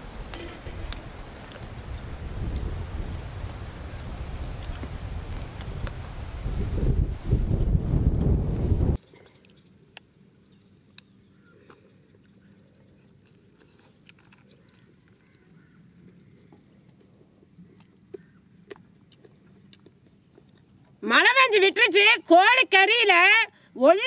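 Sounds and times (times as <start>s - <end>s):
insect chirping: 9.0s - 24.0s.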